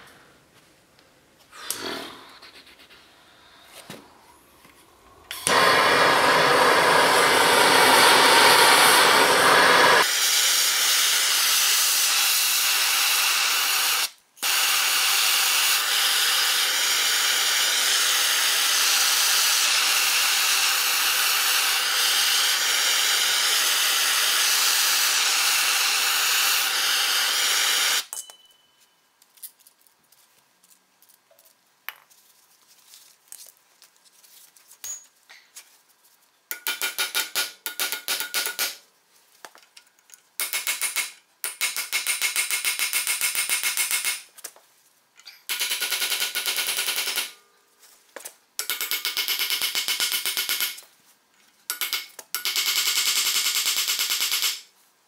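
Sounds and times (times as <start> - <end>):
gas torch flame hissing: 3.6 - 28.1.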